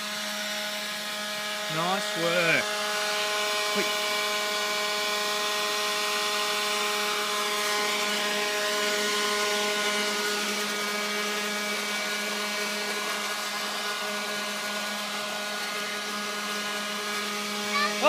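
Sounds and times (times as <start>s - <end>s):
leaf blower running: 0.0s - 18.0s.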